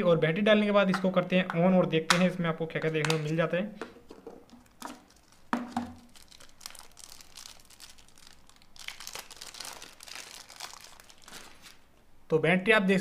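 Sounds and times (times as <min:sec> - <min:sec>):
plastic wrapping crinkling: 0:04.4 - 0:11.9.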